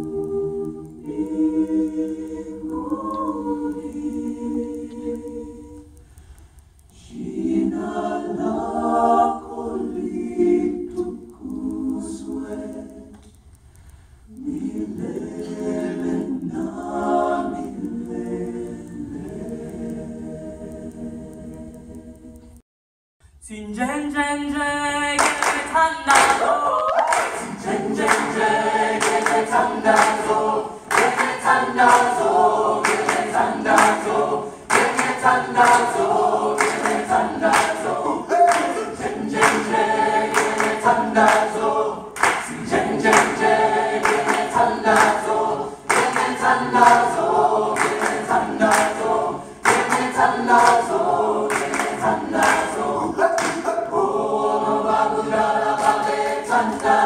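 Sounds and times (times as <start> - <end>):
choir singing a cappella: 0.0 - 22.6, 23.5 - 57.0
hand claps beat: 25.2 - 53.8, 55.7 - 57.0.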